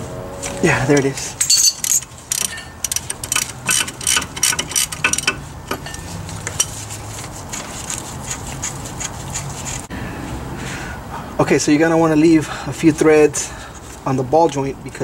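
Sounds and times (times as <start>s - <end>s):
wrench clicking on nut: 1.4s - 5.8s.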